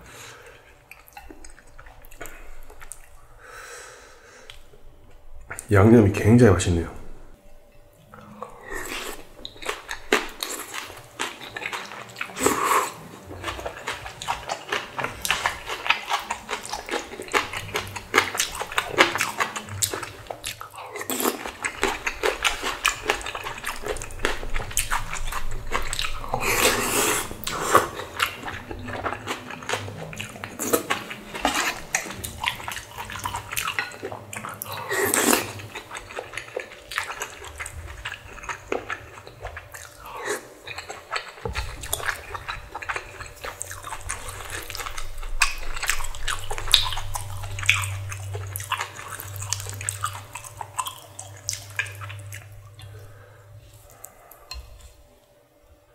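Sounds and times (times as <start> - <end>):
person chewing noodles: 0.0 - 5.7, 7.9 - 55.9
loud slurps: 24.6 - 33.9.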